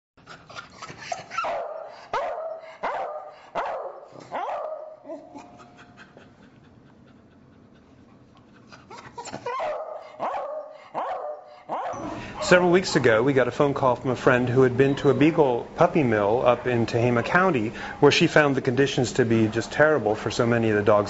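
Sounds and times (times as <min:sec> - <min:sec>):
dogs barking: 0:01.0 - 0:06.2, 0:09.0 - 0:13.3.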